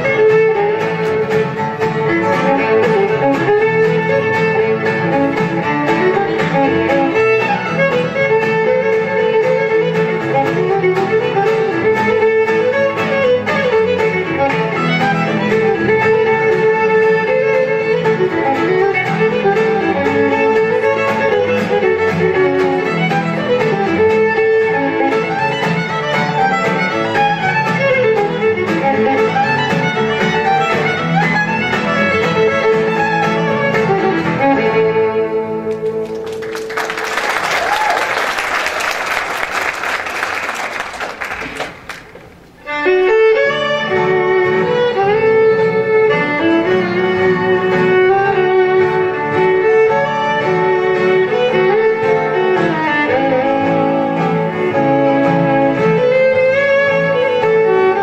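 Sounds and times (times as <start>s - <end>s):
acoustic guitar: 0.0s - 58.0s
fiddle playing: 0.0s - 58.0s
audience applause: 35.8s - 42.4s.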